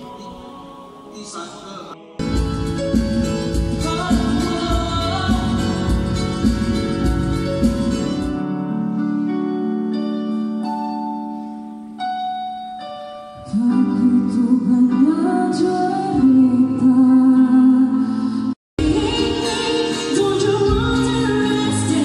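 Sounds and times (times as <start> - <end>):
keyboard playing held chords: 2.2 - 18.2
woman singing: 3.8 - 6.2, 13.4 - 18.2, 18.8 - 22.0.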